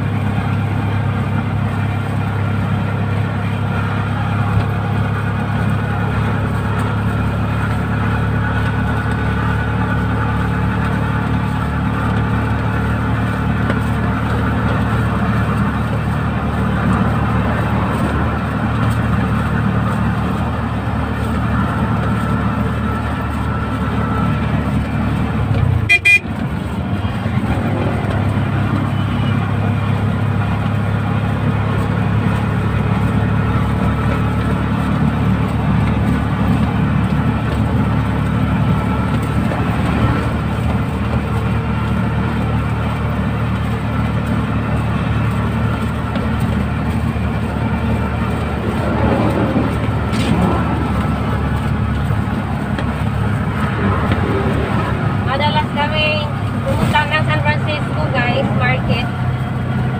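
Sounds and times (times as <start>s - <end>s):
road noise: 0.0s - 59.9s
small vehicle engine running: 0.0s - 59.9s
short horn toot: 25.8s - 26.4s.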